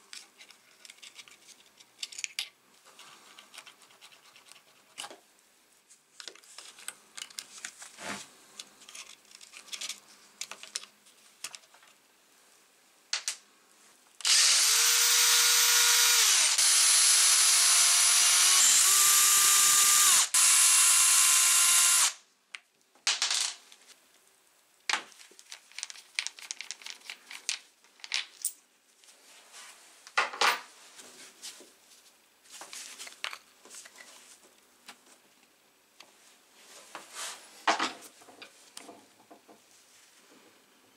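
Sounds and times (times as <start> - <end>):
power drill whining: 14.2 - 22.2.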